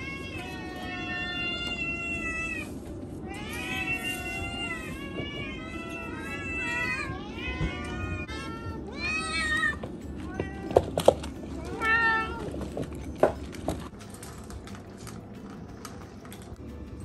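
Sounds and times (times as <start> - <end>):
cats meowing: 0.0 - 12.8.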